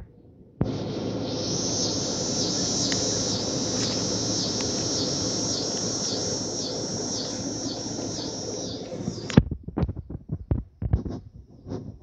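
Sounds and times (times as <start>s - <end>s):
cicada buzzing: 0.6s - 9.4s.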